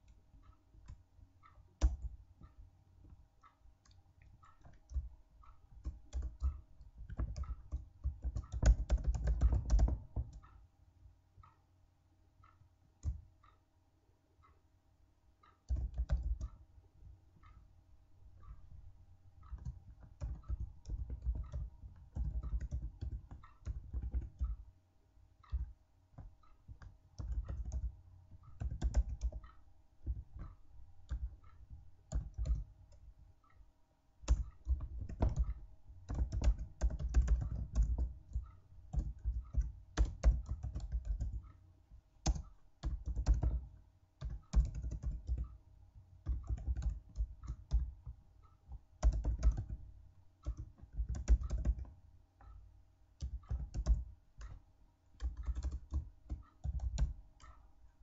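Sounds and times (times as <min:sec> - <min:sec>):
faint steady hum: 0:00.0 - 0:58.0
keyboard keys clicking: 0:03.8 - 0:10.5, 0:15.6 - 0:16.6, 0:19.4 - 0:24.6, 0:25.4 - 0:33.6, 0:34.2 - 0:41.6, 0:42.2 - 0:45.6, 0:46.2 - 0:52.6, 0:53.2 - 0:58.0.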